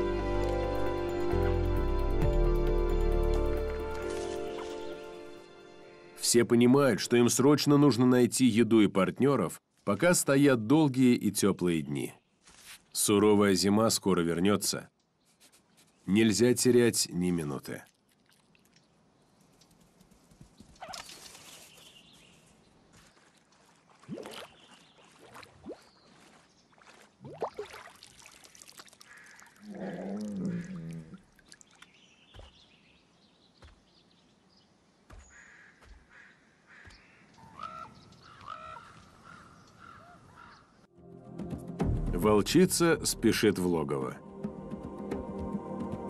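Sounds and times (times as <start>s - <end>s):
water splashing and dripping: 2.3s - 5.3s, 17.4s - 19.9s, 20.6s - 21.9s, 22.8s - 32.6s
ravens calling: 29.0s - 31.2s, 35.1s - 40.8s
low animal call: 29.6s - 31.2s.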